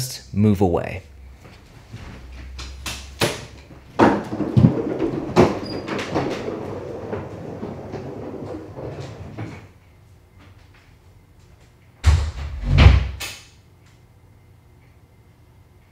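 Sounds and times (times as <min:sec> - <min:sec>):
knocking and rustling: 0:01.4 - 0:09.7
door banging shut: 0:02.8 - 0:09.7, 0:12.0 - 0:13.4.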